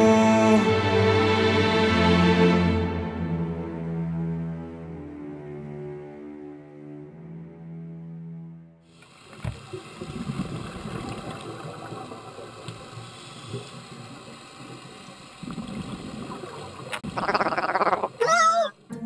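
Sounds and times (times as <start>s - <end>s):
background music: 0.0s - 8.9s, 18.8s - 19.0s
underwater rushing: 9.0s - 18.2s.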